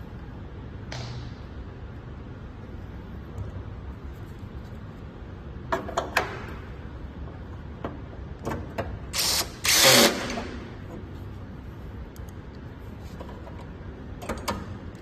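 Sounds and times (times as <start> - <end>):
cordless drill driving screw: 9.2 - 10.4.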